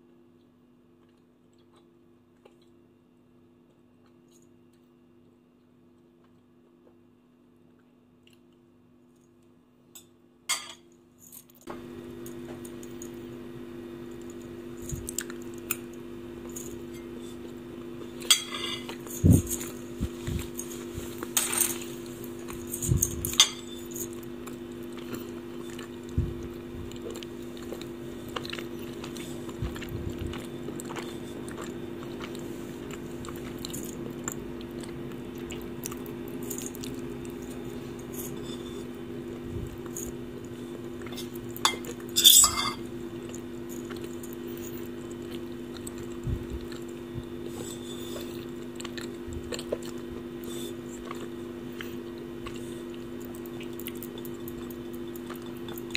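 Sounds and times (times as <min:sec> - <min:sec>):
soft chewing: 0:00.3 - 0:10.2, 0:11.0 - 0:55.9
low hum: 0:11.7 - 0:41.9
fork scraping a ceramic bowl: 0:18.3 - 0:19.7, 0:38.1 - 0:38.9
fork clattering: 0:23.4 - 0:23.8, 0:41.7 - 0:42.8.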